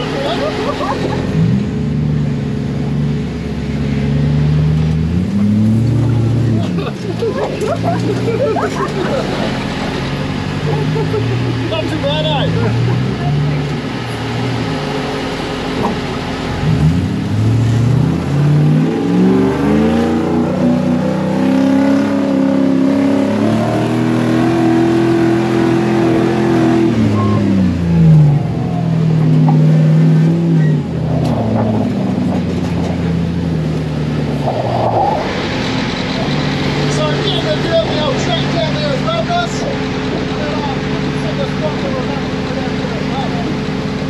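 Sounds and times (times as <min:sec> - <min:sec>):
buggy engine accelerating: 0:00.0 - 0:44.0
steady rushing noise: 0:31.1 - 0:41.4.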